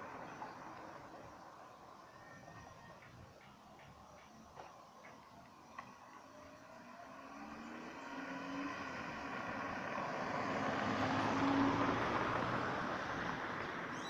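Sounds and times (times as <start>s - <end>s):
car passing by: 4.5s - 14.0s.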